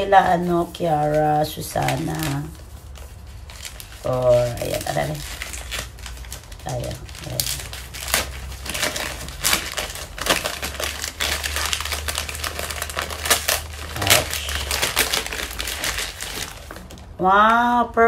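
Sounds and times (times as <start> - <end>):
wrapping paper crinkling: 0.0 - 17.2.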